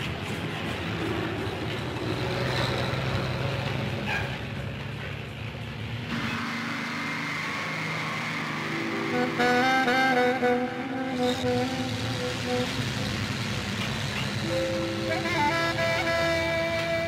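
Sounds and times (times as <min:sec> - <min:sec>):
heavy diesel engines droning: 0:00.0 - 0:17.0
hissing machine noise: 0:06.1 - 0:17.0.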